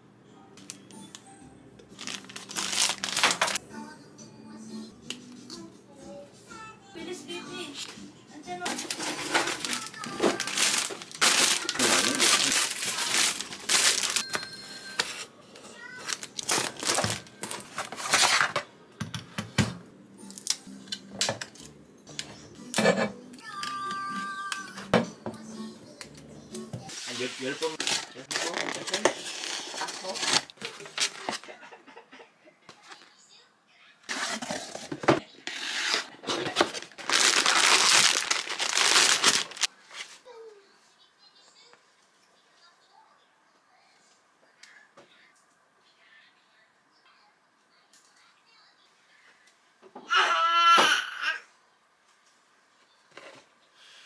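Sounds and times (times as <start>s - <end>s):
plastic packaging crinkling: 1.9s - 3.6s, 8.6s - 14.3s, 16.0s - 18.5s, 27.0s - 31.5s, 35.5s - 39.7s.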